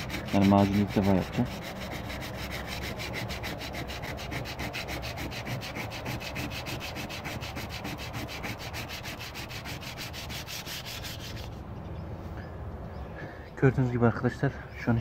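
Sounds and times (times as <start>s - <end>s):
sandpaper rubbing on metal: 0.0s - 11.6s.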